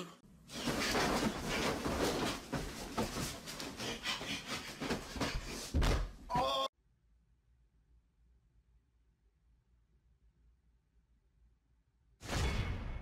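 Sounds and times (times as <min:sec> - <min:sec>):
bedsheets rustling: 0:00.4 - 0:06.2
person crying out: 0:06.3 - 0:06.7.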